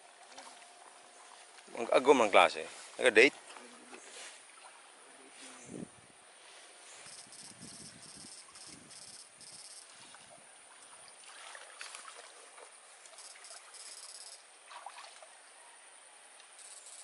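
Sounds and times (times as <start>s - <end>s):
water sloshing and splashing: 0.0s - 5.4s, 9.9s - 13.8s, 14.6s - 15.4s
thin high-pitched buzz: 5.3s - 10.2s, 13.0s - 14.8s, 16.6s - 17.0s.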